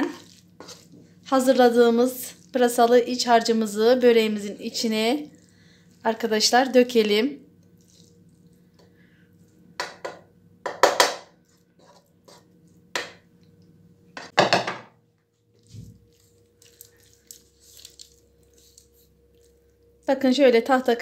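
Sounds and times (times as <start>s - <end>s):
soft scraping of filling on dough: 0.1s - 1.3s, 11.4s - 12.8s, 15.6s - 19.6s.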